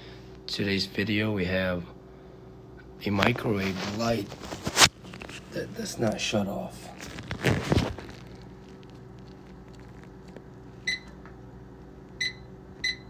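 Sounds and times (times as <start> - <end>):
faint steady hum: 0.0 - 13.0
brief rustling: 3.2 - 6.2, 6.8 - 10.4
microwave keypad beeps: 10.8 - 11.2, 12.2 - 13.0.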